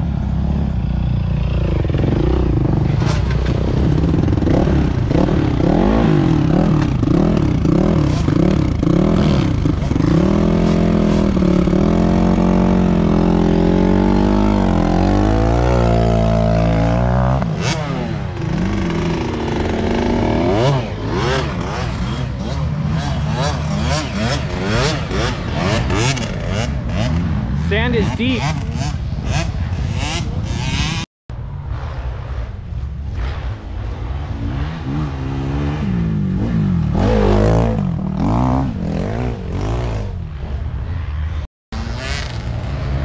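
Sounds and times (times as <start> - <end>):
dirt bike engine revving: 0.3 - 31.1, 33.2 - 43.0.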